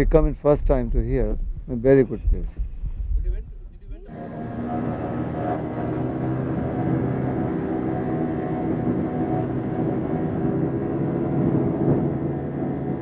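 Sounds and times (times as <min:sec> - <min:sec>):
outboard motor droning: 0:04.0 - 0:13.0.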